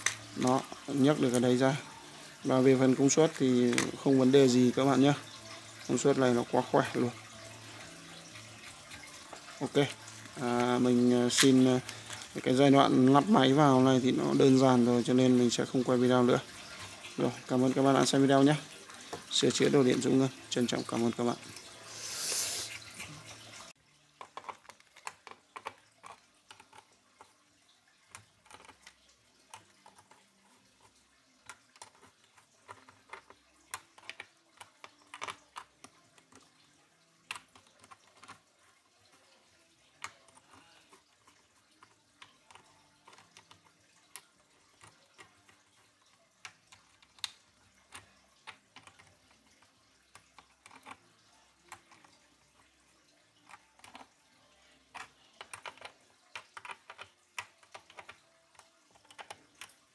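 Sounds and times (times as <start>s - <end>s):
low hiss: 19.3s - 23.3s.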